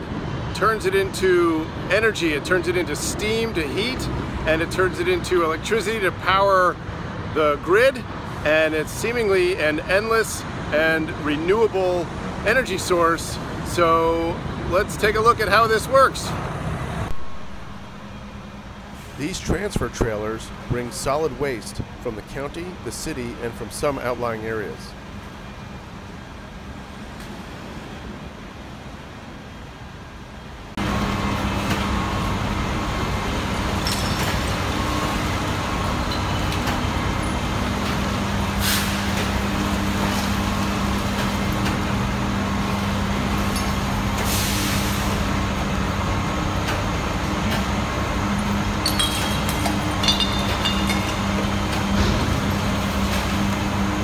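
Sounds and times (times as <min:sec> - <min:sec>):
diesel truck engines running: 0:00.0 - 0:54.0
air brake hisses: 0:38.6 - 0:39.1, 0:44.2 - 0:45.2.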